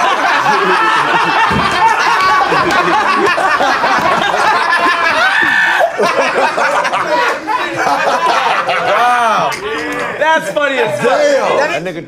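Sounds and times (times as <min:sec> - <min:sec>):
people laughing: 0:00.0 - 0:11.9
people talking: 0:06.0 - 0:12.0.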